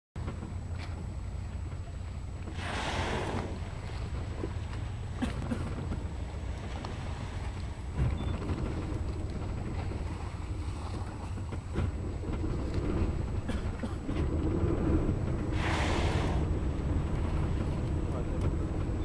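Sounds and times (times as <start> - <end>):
boat engine rumble: 0.2 - 19.0
wind buffeting microphone: 0.2 - 19.0
short hissing whoosh: 2.5 - 3.8, 15.5 - 16.6.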